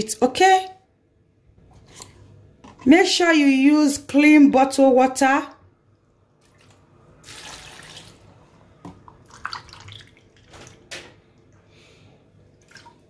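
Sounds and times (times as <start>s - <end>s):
water pouring into metal cup: 6.5s - 8.2s, 9.2s - 10.5s.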